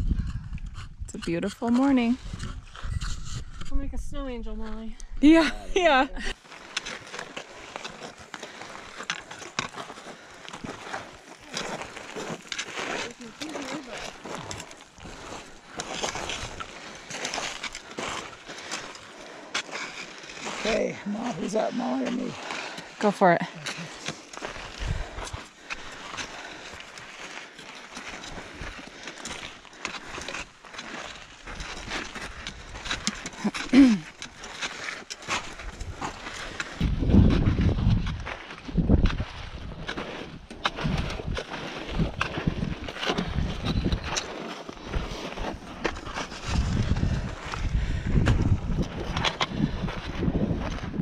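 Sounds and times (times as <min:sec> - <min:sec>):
boots crunching on loose rock: 0:05.8 - 0:51.0
trekking pole tip clicking on stones: 0:06.5 - 0:20.6, 0:23.6 - 0:39.2, 0:39.9 - 0:44.6.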